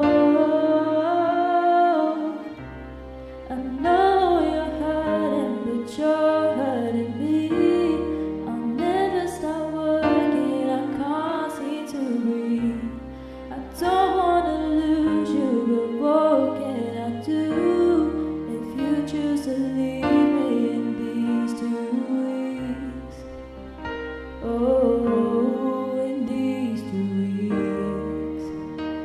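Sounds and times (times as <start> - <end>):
person singing a melody: 0.0 - 2.6, 3.4 - 23.2, 24.4 - 28.6.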